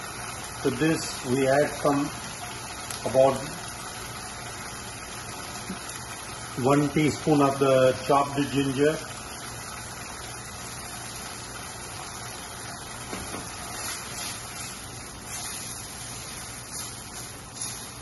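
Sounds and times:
sauce hissing in a pan: 0.0 - 18.0
spatula scraping a pan: 13.7 - 18.0.

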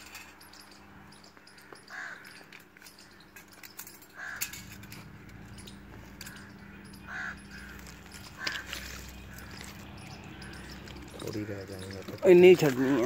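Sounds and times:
crow cawing: 1.5 - 3.2, 4.1 - 4.8, 6.2 - 11.1.

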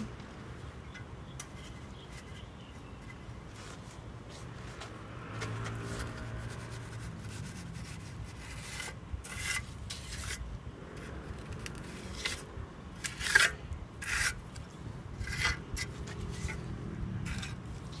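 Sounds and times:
trowel scraping wet plaster: 5.6 - 10.4, 11.6 - 16.6.

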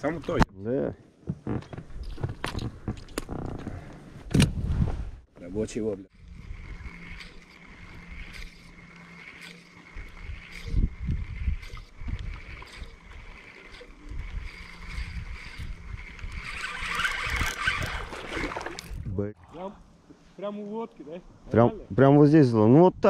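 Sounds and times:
fishing reel ticking: 6.1 - 19.0
fish splashing: 6.1 - 19.6
water lapping against boat hull: 6.1 - 20.2.

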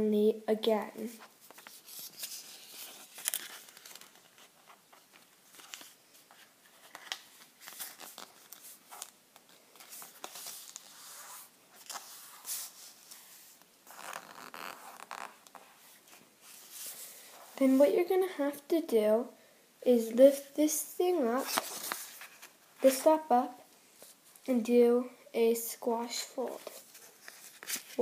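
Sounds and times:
paper rustling and crinkling: 1.2 - 17.8, 21.3 - 23.1, 26.4 - 28.0.

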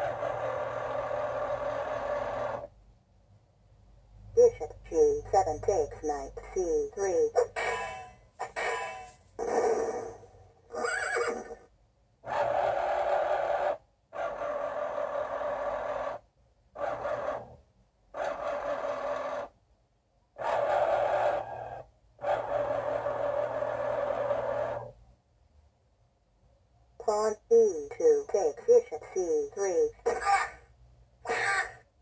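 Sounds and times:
motor whirring sliding chess pieces: 0.0 - 2.7, 18.2 - 19.6, 22.4 - 25.0.

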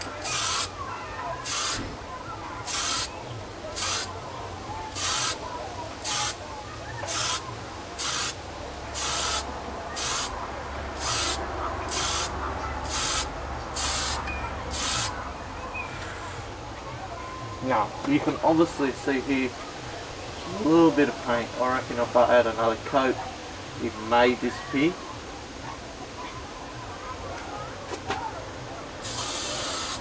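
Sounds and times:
spray paint can hissing: 0.0 - 0.8, 1.4 - 2.0, 2.6 - 3.1, 3.8 - 4.1, 4.9 - 5.4, 6.0 - 6.4, 7.0 - 7.4, 8.0 - 10.4, 11.0 - 15.2, 29.0 - 30.0.

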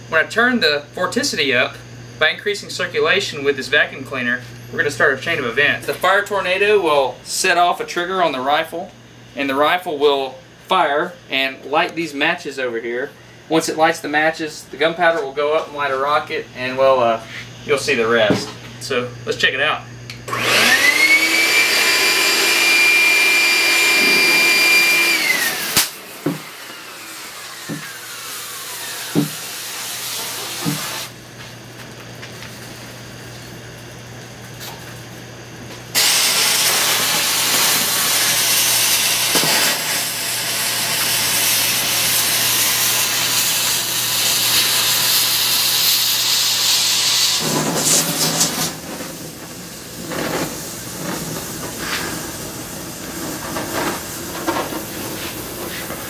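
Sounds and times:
vacuum cleaner motor whine: 19.7 - 33.1, 35.7 - 56.0
sharp cracks: 25.7 - 26.0
hissing rush of rockets: 42.1 - 56.0.

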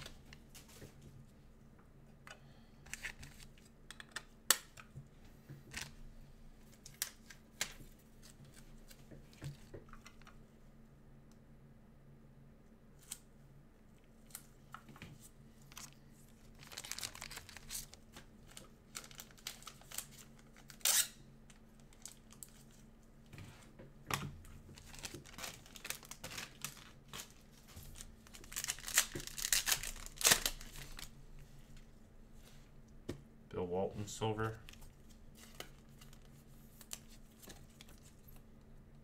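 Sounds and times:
wrapper crinkling and tearing: 15.7 - 21.2, 21.9 - 22.8, 24.7 - 31.2.

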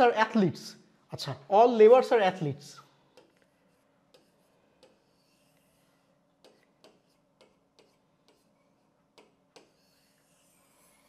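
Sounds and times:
pen ticking on a board: 4.1 - 5.3, 6.4 - 8.5, 9.1 - 10.1.

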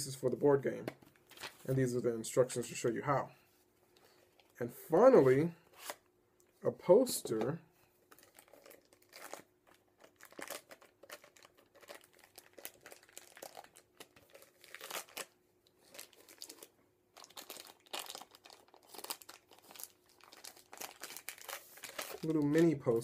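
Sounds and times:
plastic wrapping crinkling: 8.1 - 22.9.

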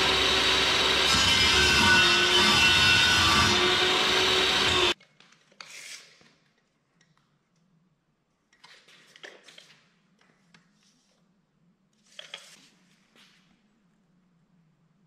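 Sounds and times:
table saw cutting board: 0.0 - 5.0.

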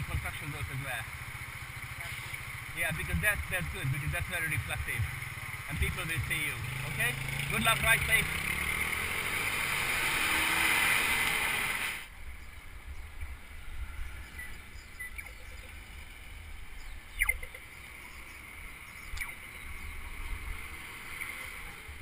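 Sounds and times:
sharp clicks: 19.1 - 19.4.

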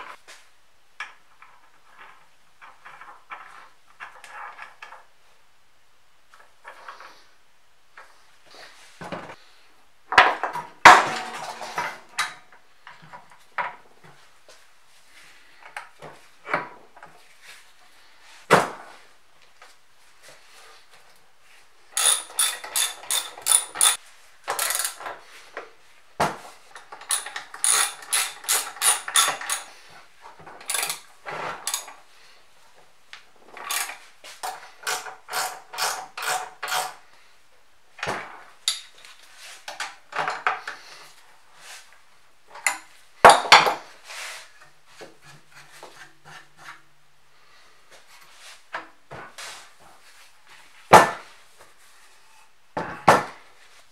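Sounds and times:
ratcheting wrench clicking: 22.0 - 25.0, 27.0 - 29.7, 30.7 - 31.0, 31.7 - 31.9, 33.6 - 36.9
metal parts knocking: 22.0 - 25.1, 26.8 - 29.7, 30.7 - 31.0.

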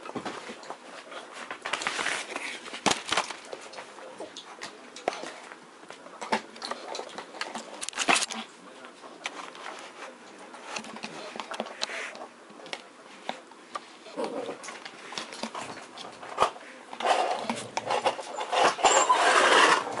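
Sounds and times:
rubbing against microphone: 17.0 - 20.0.

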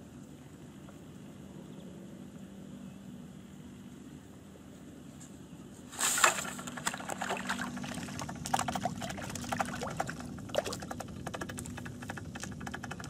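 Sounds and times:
fish splashing in water: 6.0 - 12.6.

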